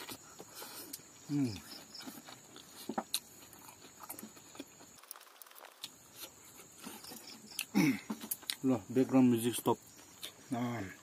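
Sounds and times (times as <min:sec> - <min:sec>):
wet chewing mouth sounds: 0:00.0 - 0:08.6
crunchy clicks: 0:03.0 - 0:06.3.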